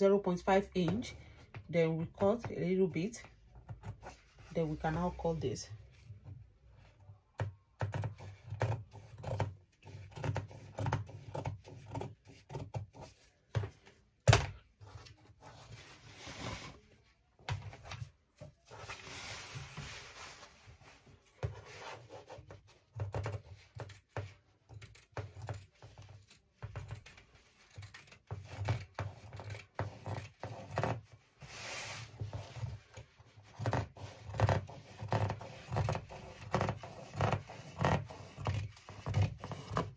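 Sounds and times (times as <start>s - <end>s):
scissors snipping fabric: 7.4s - 13.2s, 22.4s - 31.0s
fabric rustling: 14.8s - 22.0s.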